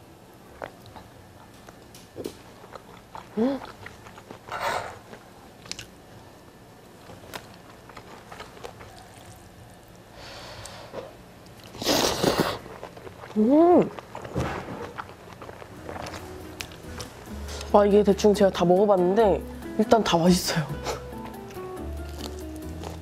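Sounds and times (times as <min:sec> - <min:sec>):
person chewing food: 0:00.5 - 0:06.0, 0:07.0 - 0:17.8, 0:20.8 - 0:23.0
loud slurp: 0:11.7 - 0:12.6.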